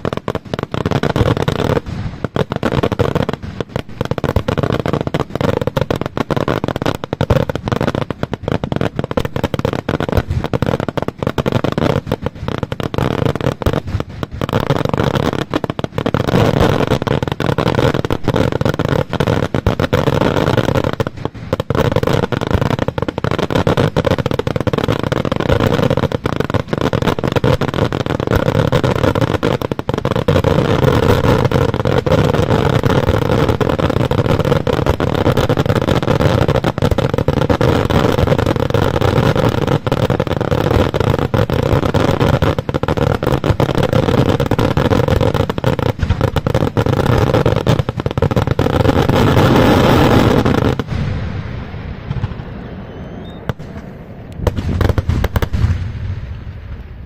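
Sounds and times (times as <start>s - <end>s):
fireworks bangs and crackles: 0.0s - 57.0s.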